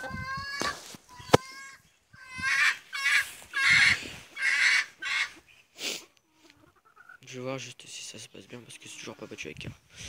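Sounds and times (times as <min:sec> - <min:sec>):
poultry squawking: 0:00.0 - 0:05.7, 0:06.3 - 0:07.2, 0:08.5 - 0:09.5.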